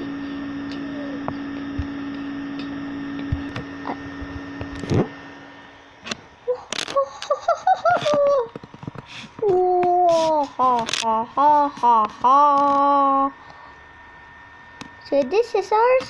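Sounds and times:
electrical hum: 0.0 - 16.0
high wavering voice: 0.7 - 1.4, 9.4 - 13.4.

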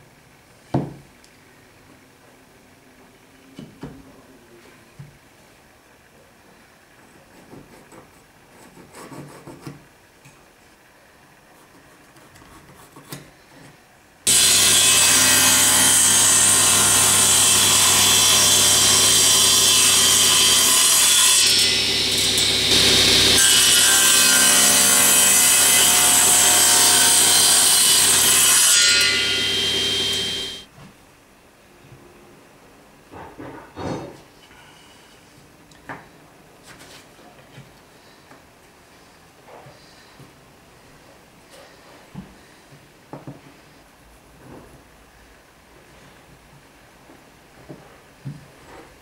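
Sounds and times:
power saw cutting wood: 14.3 - 30.7.

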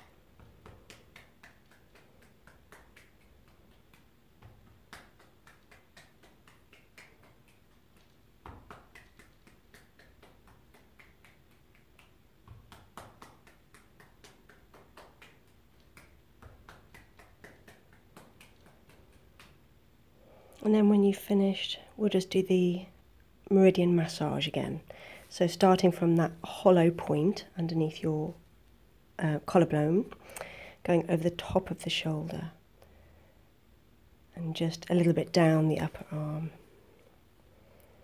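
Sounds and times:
hand patting shoulder and arm: 0.0 - 19.7.

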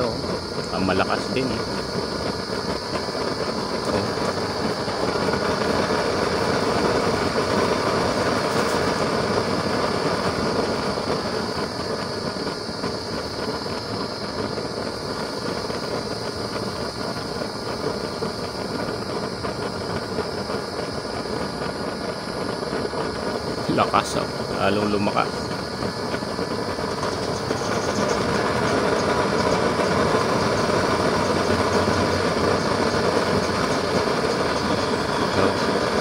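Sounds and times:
oil burner flame rushing: 0.0 - 36.0.

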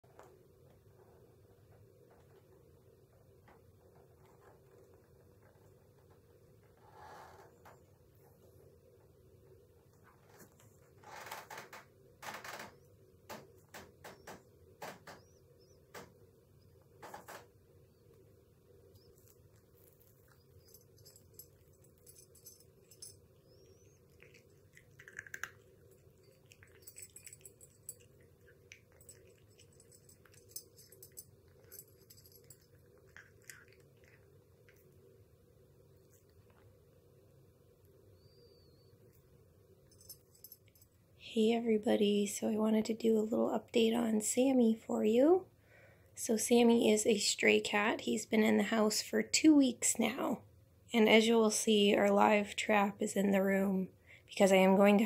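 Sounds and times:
cat eating from ceramic bowl: 18.9 - 37.2.

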